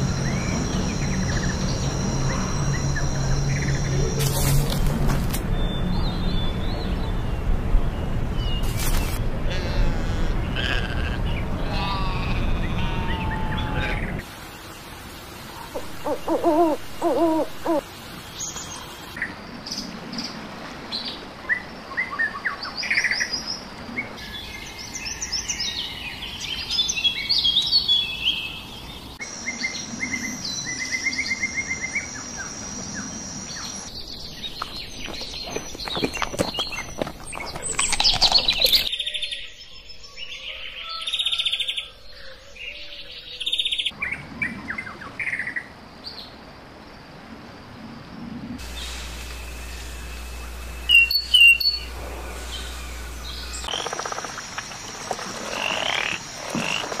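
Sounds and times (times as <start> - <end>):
birds chirping and trilling: 0.0 - 20.4, 21.0 - 46.4, 48.6 - 57.0
owl hooting: 15.7 - 17.8.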